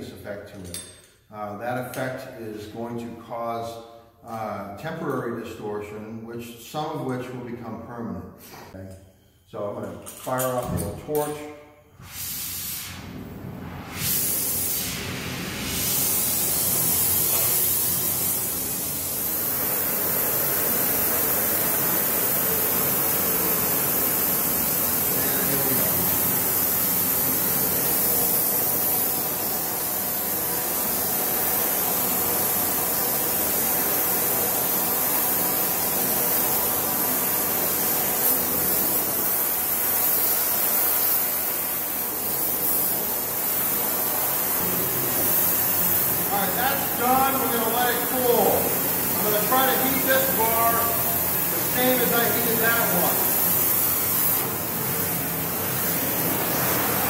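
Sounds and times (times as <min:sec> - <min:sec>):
gas torch flame hissing: 0:12.0 - 0:57.0.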